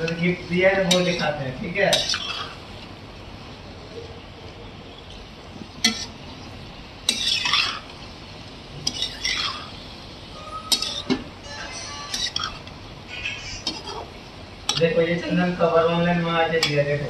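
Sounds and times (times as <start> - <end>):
spatula scraping a metal pan: 1.9 - 2.6, 5.8 - 6.2, 8.8 - 9.7, 10.7 - 12.7.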